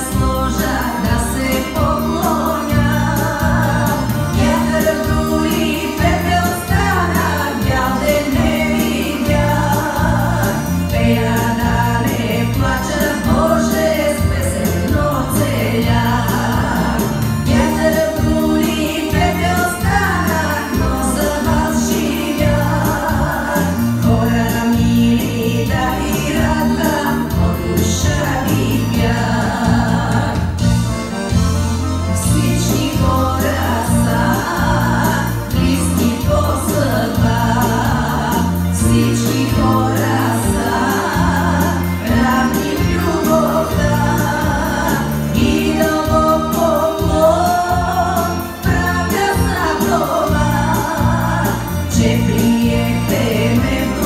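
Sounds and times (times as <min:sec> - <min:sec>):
woman singing folk song: 0:00.0 - 0:30.7, 0:32.1 - 0:54.0.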